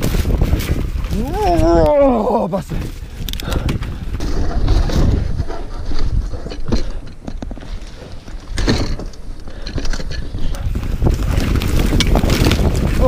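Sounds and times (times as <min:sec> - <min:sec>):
bike rattling over bumps: 0:00.0 - 0:13.0
wind buffeting microphone: 0:00.0 - 0:13.0
tyres rolling over dirt: 0:03.7 - 0:13.0.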